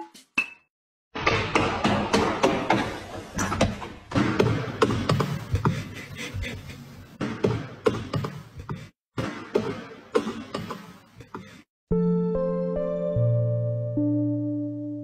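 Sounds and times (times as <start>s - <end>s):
piano music: 11.9s - 15.0s.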